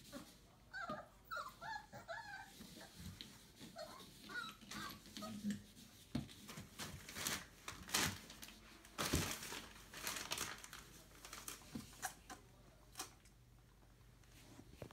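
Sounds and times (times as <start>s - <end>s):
puppies rustling and scuffing: 1.9s - 12.2s.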